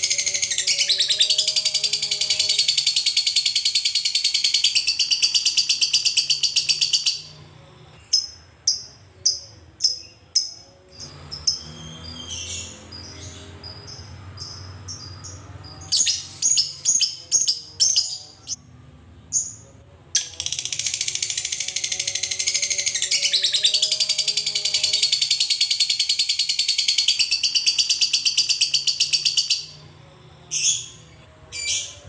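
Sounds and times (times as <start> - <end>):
lovebird chirps: 8.0 - 18.6.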